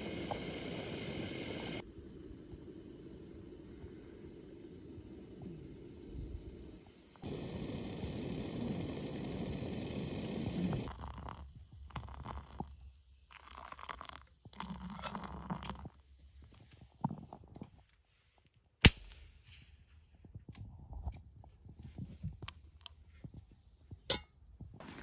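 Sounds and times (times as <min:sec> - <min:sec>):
water poured into metal mug: 0:10.7 - 0:12.7, 0:13.3 - 0:16.0.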